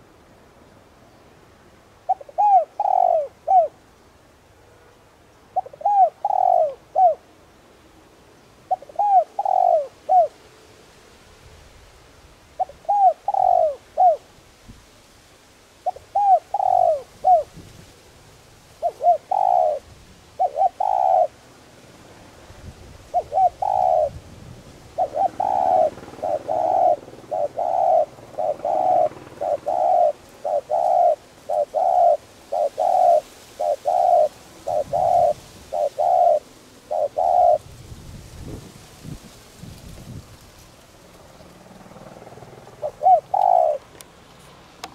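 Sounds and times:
dove cooing: 2.0 - 3.8, 5.6 - 7.3, 8.6 - 10.4, 12.6 - 14.3, 15.8 - 17.6, 18.7 - 21.4, 23.0 - 37.8, 41.4 - 44.0.

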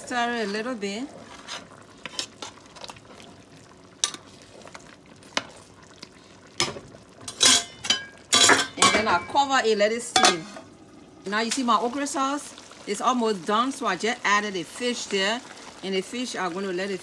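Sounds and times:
spoon clanking and scraping pot: 0.1 - 3.0, 4.0 - 4.3, 6.6 - 9.4, 10.1 - 10.7
spoon clinking against pot: 7.3 - 9.1.

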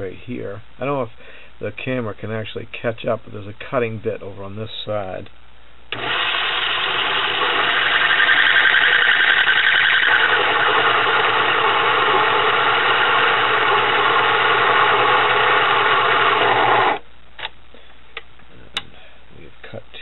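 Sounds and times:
metal lathe whirring: 5.9 - 17.0.

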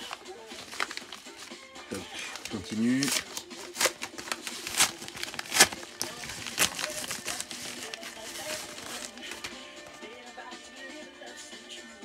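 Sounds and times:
cardboard tearing: 0.0 - 9.6
packaging crinkling: 0.0 - 9.8
sharp cracks: 3.2 - 7.1.

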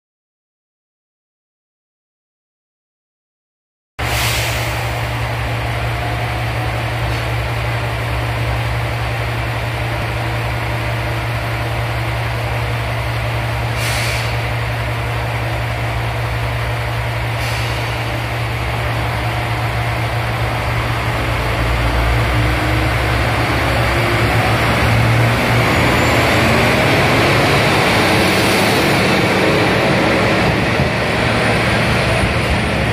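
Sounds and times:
air hissing: 4.0 - 5.1, 13.7 - 14.6
diesel railcar engine running: 4.0 - 32.9.

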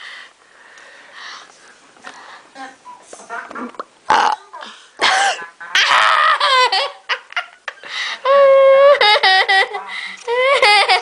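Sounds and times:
boy laughing: 5.2 - 11.0.

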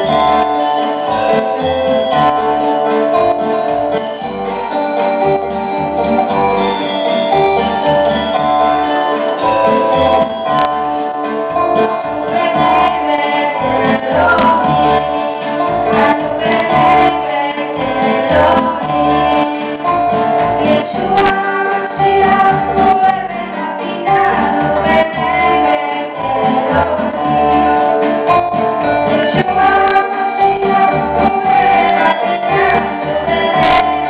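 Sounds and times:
electronic keyboard bass notes: 0.0 - 34.0
nylon-string guitar: 0.0 - 34.0
girl singing into a microphone: 12.2 - 19.8, 20.6 - 27.8, 29.0 - 34.0.

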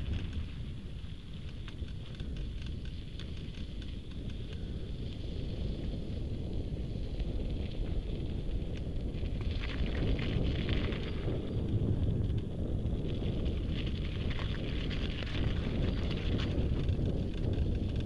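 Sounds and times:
bike rattling: 0.0 - 18.0
wind buffeting microphone: 0.0 - 18.0
tyres rolling over gravel: 9.0 - 18.0.

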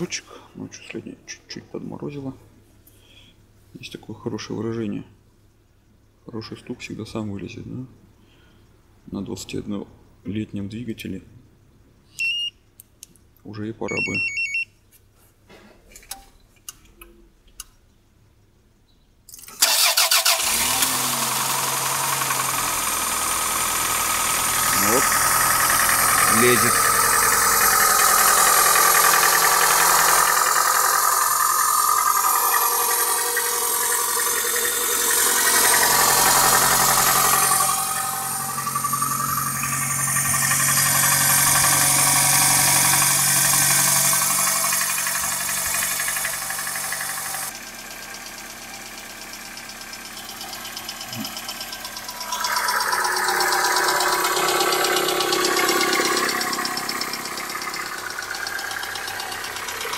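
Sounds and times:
engine idling with knock: 22.4 - 52.2, 52.8 - 59.9.

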